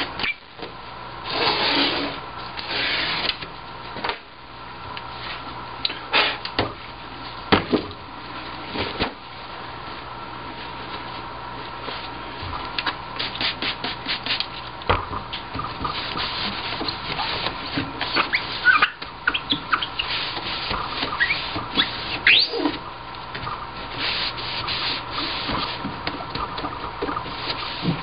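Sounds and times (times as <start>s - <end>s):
paper squeaking on glass: 0.2s - 0.4s, 15.7s - 28.0s
paper towel scrubbing glass: 13.2s - 14.6s, 15.4s - 28.0s.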